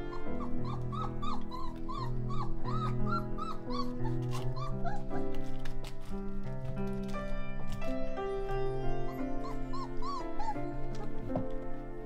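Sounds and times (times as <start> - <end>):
puppies whimpering: 0.0 - 6.1, 8.6 - 11.6
background music: 0.0 - 12.0.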